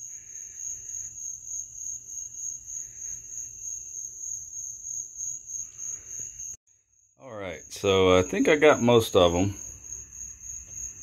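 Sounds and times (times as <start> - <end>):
crickets trilling: 0.0 - 11.0.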